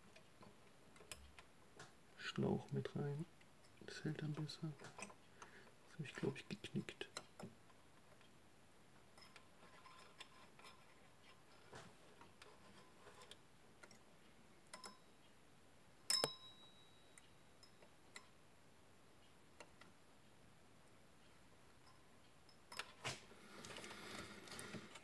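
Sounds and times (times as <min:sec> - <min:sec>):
small parts clicking and tapping: 0:09.1 - 0:15.0.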